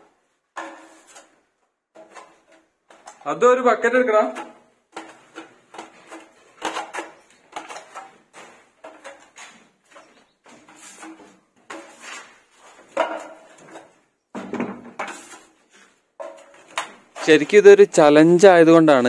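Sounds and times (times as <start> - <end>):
putty blade scraping wall: 0.6 - 3.2, 4.3 - 14.0, 14.8 - 17.6.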